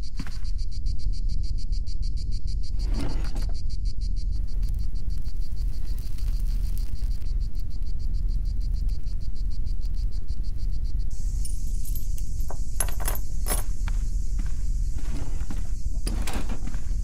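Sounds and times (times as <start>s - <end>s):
crickets chirping: 0.0s - 17.0s
high hiss: 4.4s - 16.0s.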